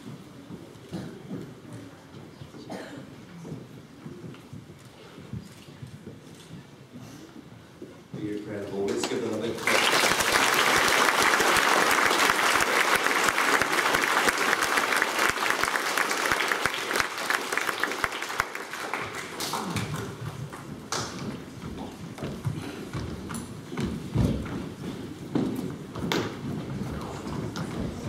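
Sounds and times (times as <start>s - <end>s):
children clapping: 9.0s - 21.2s.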